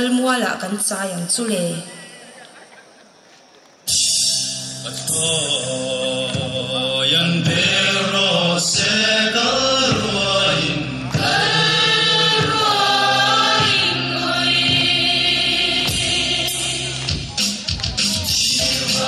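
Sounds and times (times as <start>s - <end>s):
group chanting in unison: 4.9s - 17.0s, 18.6s - 19.0s.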